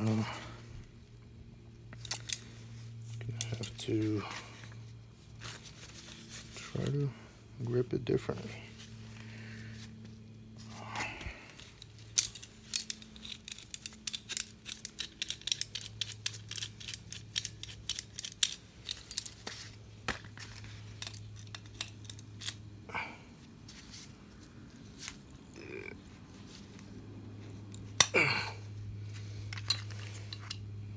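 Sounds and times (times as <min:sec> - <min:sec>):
metal pliers clicking and clinking: 0:01.9 - 0:02.5, 0:03.2 - 0:04.1, 0:11.6 - 0:19.4, 0:20.9 - 0:22.6, 0:27.7 - 0:28.2, 0:29.5 - 0:30.7.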